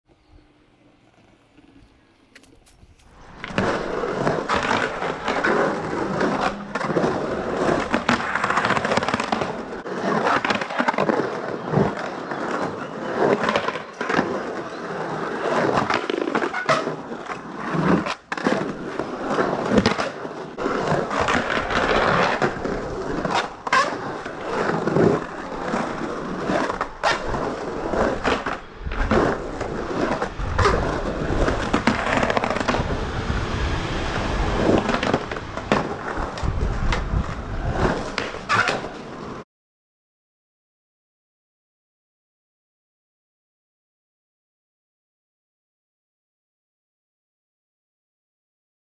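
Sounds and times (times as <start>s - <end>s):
skateboard wheels rolling on concrete: 0.0s - 39.4s
skateboard clacking on concrete: 0.8s - 32.7s, 37.7s - 39.4s.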